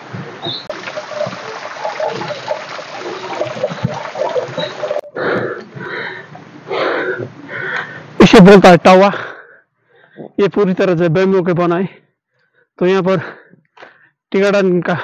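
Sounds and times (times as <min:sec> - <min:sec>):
stream trickling and splashing: 0:00.0 - 0:05.1.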